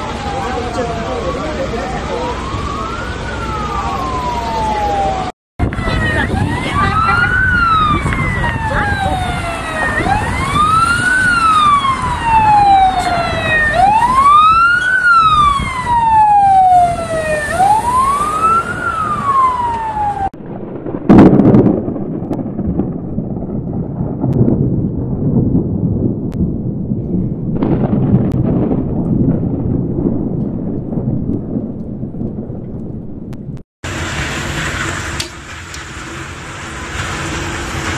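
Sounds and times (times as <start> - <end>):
emergency vehicle siren wailing: 0.0 - 20.4
thunder clap with rolling rumble: 0.0 - 37.9.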